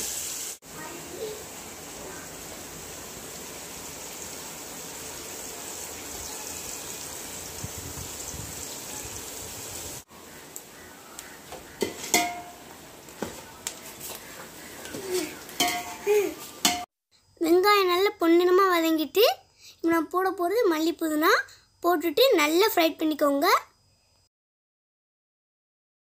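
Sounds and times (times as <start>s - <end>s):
onions sizzling in oil: 0.0s - 16.9s
ladle scraping a steel pot: 11.8s - 12.5s.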